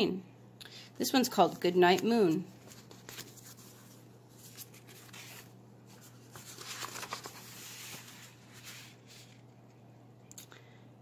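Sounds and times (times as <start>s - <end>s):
book pages turning: 1.9s - 9.6s.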